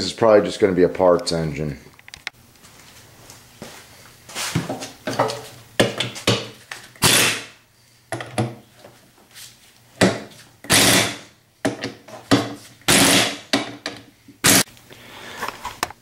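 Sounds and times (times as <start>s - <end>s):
power driver bursts: 7.0s - 7.5s, 10.7s - 11.3s, 12.9s - 13.5s, 14.4s - 14.7s.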